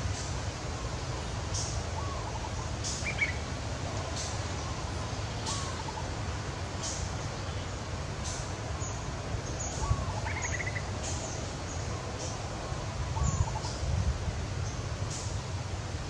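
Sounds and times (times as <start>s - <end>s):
birds calling: 0.0s - 13.9s.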